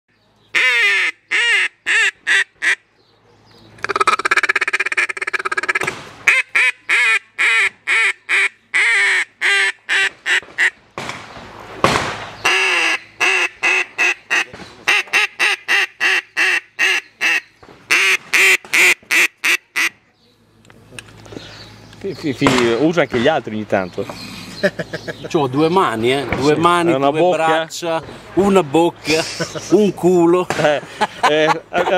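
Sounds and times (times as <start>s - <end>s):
duck call quacks: 0.6s - 2.8s, 3.8s - 10.8s, 12.4s - 20.0s.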